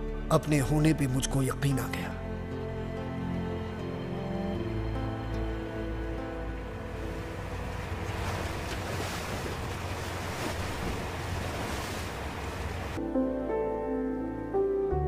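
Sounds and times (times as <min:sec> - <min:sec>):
low steady drone: 0:02.2 - 0:13.0
sea waves: 0:02.4 - 0:13.0
wind: 0:03.2 - 0:13.0
motorboat moving through choppy water: 0:04.8 - 0:13.0.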